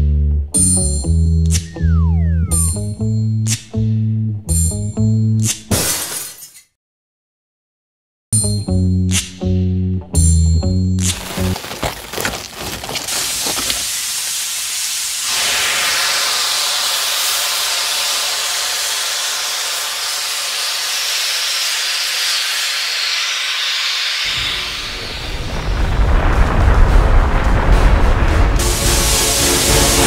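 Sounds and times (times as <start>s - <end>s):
loud spraying hiss: 13.1s - 25.2s, 28.6s - 30.0s.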